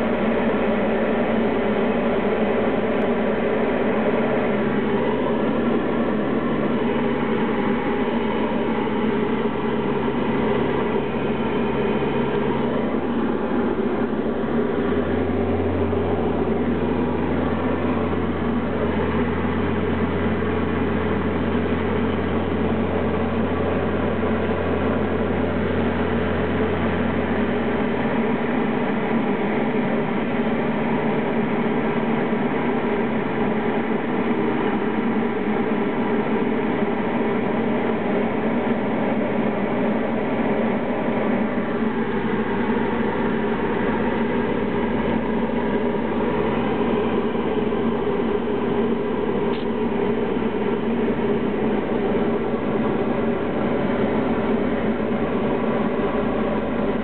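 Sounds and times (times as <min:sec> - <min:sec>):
deep low hum: 0:00.0 - 0:29.6
light aircraft engine and propeller: 0:00.0 - 0:57.0.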